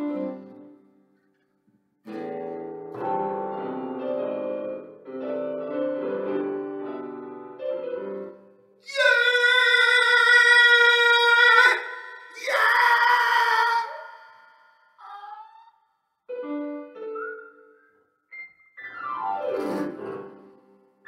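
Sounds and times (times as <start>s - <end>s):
keyboard piano chords: 2.1s - 8.5s, 16.3s - 20.7s
man singing operatic notes: 8.9s - 14.4s.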